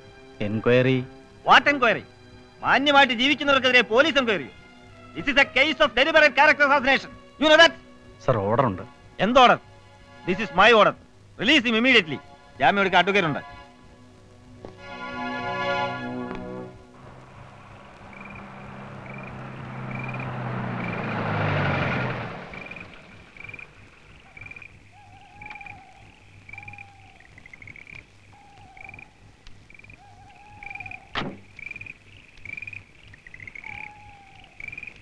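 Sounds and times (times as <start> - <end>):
chirping night calls: 14.8 - 35.0
car driving up: 15.9 - 24.7
lower animal calls: 17.0 - 35.0.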